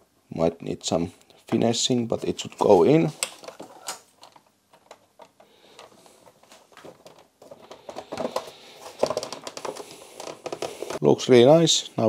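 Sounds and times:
hard plastic clicking and scraping: 3.2 - 11.0.

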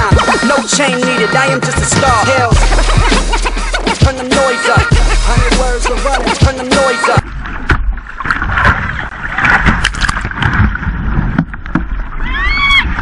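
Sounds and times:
paddle splashes: 6.9 - 13.0.

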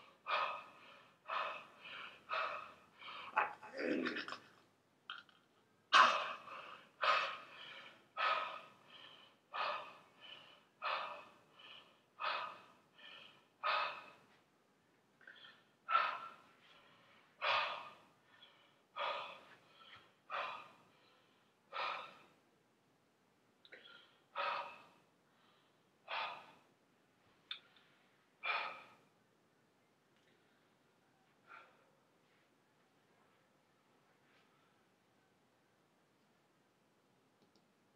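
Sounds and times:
man breathing hard: 0.0 - 3.4, 6.0 - 14.4, 15.2 - 22.5, 23.7 - 26.8, 27.7 - 29.2, 31.4 - 32.5.

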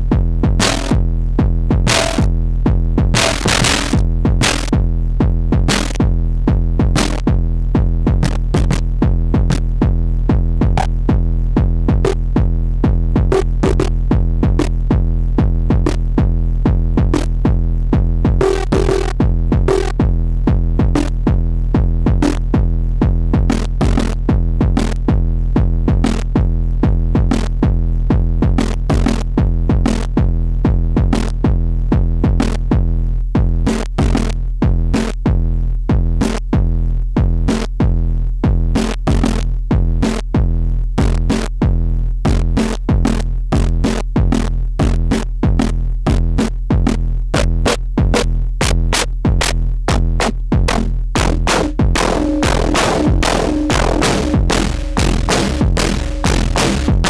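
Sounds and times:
synthesizer percussive hits: 0.6 - 1.0, 1.8 - 2.3, 3.1 - 4.7, 48.6 - 57.0
low synthesizer drone: 49.9 - 57.0.

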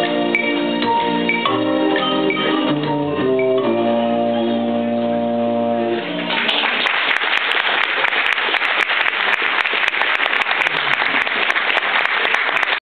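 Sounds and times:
audience applauding: 6.1 - 12.8.

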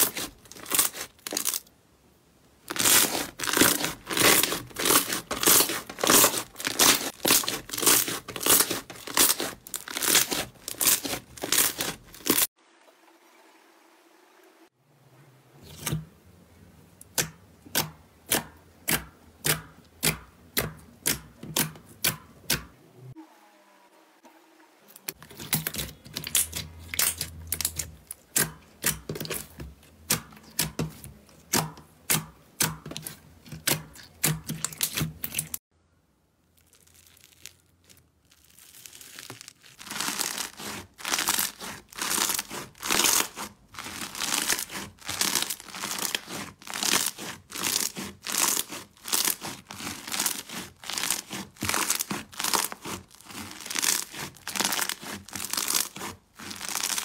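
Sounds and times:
slime crackling when squeezed: 0.0 - 1.6, 2.7 - 12.5, 36.5 - 57.0
sticky slime popping: 0.0 - 1.6, 2.7 - 12.5, 25.2 - 35.6, 36.6 - 57.0.

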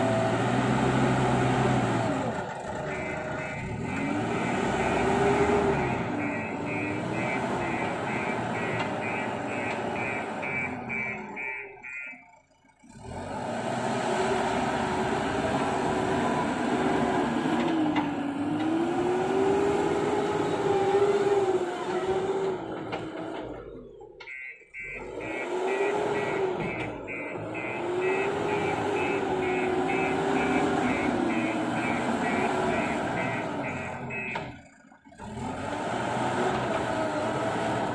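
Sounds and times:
diesel engine revving: 0.0 - 37.9
reversing alarm beeping: 2.9 - 12.4, 24.2 - 34.6.

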